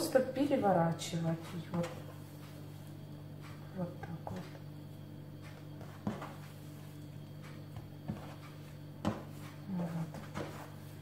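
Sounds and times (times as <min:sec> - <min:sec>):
steady low hum: 0:00.0 - 0:11.0
dough knocks on countertop: 0:09.0 - 0:09.3.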